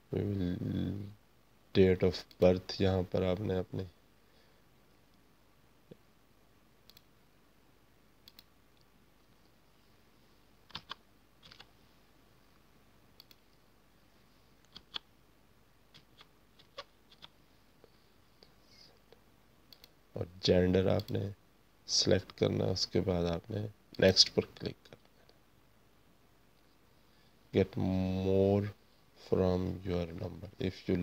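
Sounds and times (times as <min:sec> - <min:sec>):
computer mouse clicks: 0:06.8 - 0:07.1, 0:08.2 - 0:08.9, 0:10.7 - 0:11.7, 0:13.2 - 0:13.5, 0:14.6 - 0:15.1, 0:15.9 - 0:17.4, 0:19.7 - 0:20.0
keyboard keystrokes: 0:10.7 - 0:11.7.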